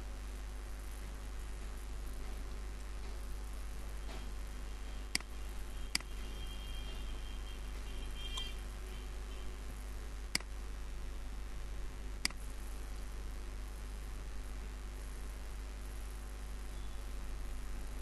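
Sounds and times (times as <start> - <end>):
low hum and hiss: 0.0 - 18.0
computer mouse clicks: 5.1 - 5.3, 10.3 - 10.5.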